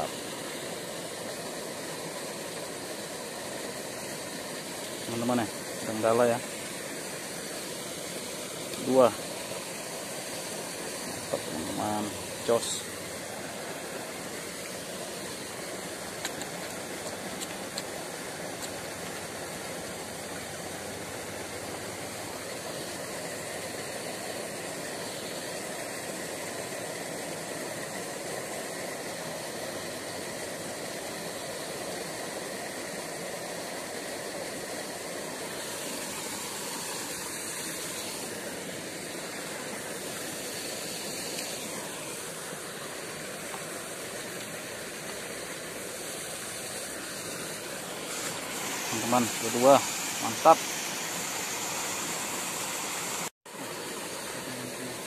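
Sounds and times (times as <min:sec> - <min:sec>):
steady background hiss: 0:00.0 - 0:55.0.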